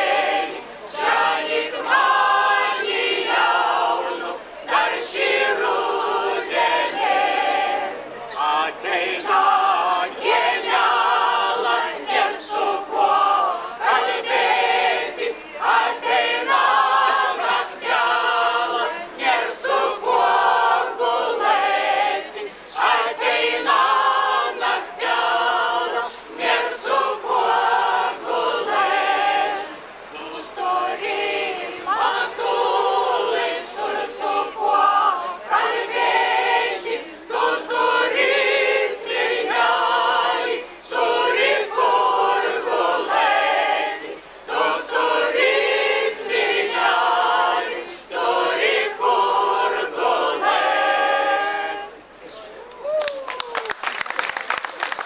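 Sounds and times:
choir singing unaccompanied: 0.0s - 52.6s.

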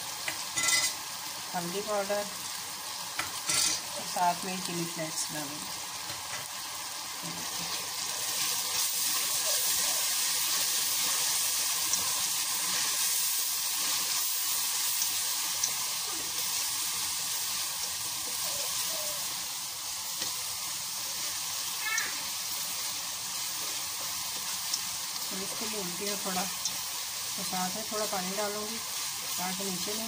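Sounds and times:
spices sizzling in hot oil: 0.0s - 30.0s
spatula stirring in a pot: 7.2s - 19.0s.

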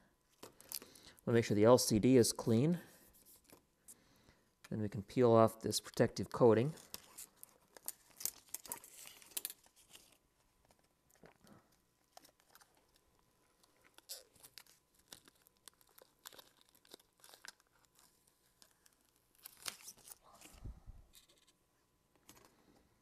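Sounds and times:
plastic film crinkling: 6.7s - 21.6s.

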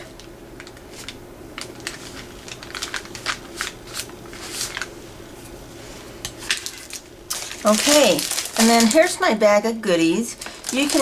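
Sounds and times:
paper rustling and tapping: 0.6s - 4.9s, 10.4s - 11.0s.

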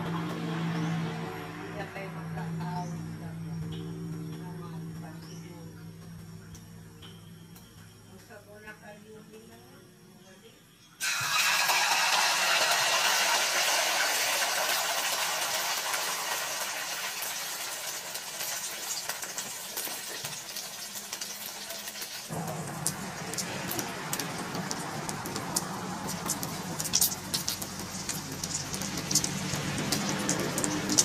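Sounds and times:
egg sizzling in hot oil: 11.0s - 31.0s.

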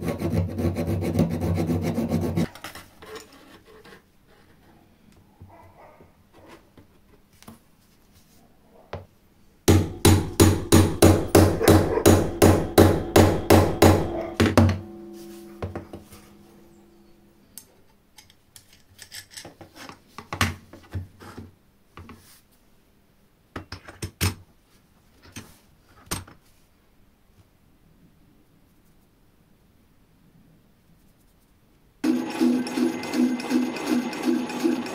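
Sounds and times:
hammer striking metal: 9.7s - 17.4s
ringing hum: 9.8s - 17.6s
metal parts clicking and knocking: 18.2s - 19.6s.

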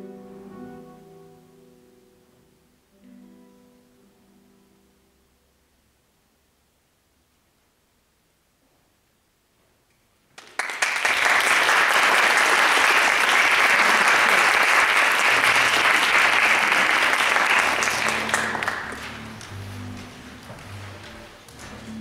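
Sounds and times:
audience applauding: 10.4s - 19.6s.

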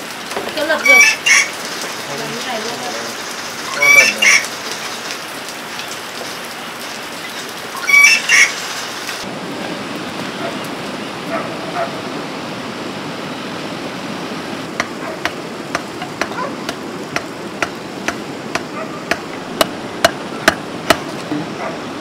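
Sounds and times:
steady rain: 0.0s - 22.0s
hammer knocking on timber: 14.8s - 21.1s.

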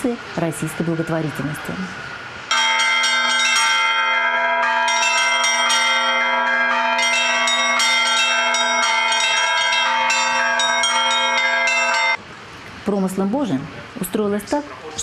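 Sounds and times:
church bells pealing: 2.5s - 12.2s
steady low bell tone: 2.5s - 12.2s.

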